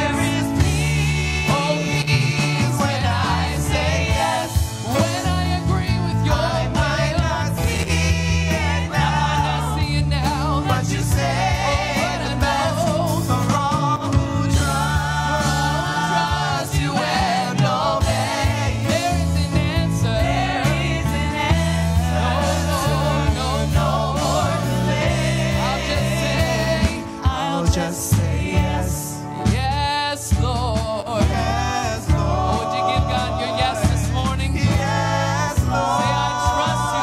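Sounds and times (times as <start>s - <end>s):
electric bass line: 0.0s - 37.0s
singers with vibrato: 31.0s - 37.0s.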